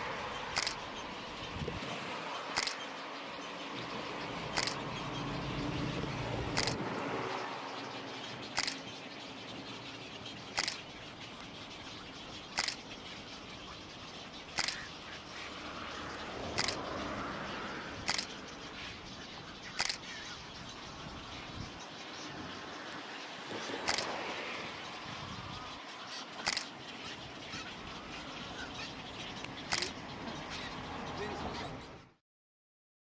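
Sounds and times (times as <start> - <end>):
outdoor background hiss: 0.0 - 32.2
camera shutter clicks: 0.6 - 0.8, 2.6 - 2.8, 4.6 - 4.8, 6.5 - 6.8, 8.6 - 8.8, 10.6 - 10.8, 12.6 - 12.8, 14.6 - 14.8, 16.6 - 16.8, 18.1 - 18.3, 19.8 - 20.0, 23.8 - 24.1, 26.4 - 26.7, 29.7 - 29.9.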